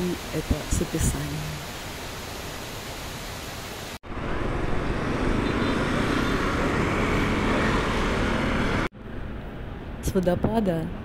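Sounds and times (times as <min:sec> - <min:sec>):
road traffic noise: 0:01.6 - 0:10.2.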